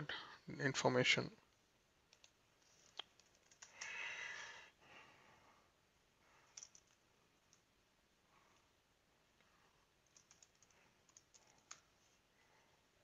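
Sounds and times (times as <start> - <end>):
computer keyboard typing: 2.1 - 4.0, 6.5 - 7.7, 10.0 - 11.9.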